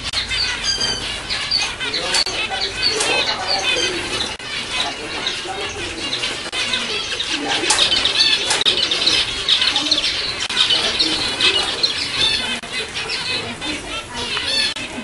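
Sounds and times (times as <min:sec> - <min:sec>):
finches chirping chorus: 0:00.0 - 0:15.0.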